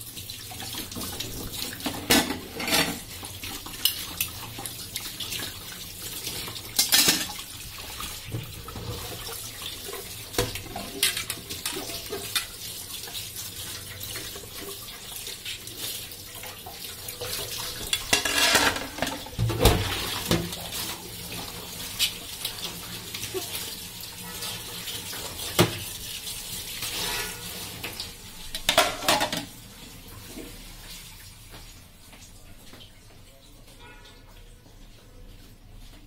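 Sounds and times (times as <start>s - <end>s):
dishes knocking against sink: 28.6s - 29.5s.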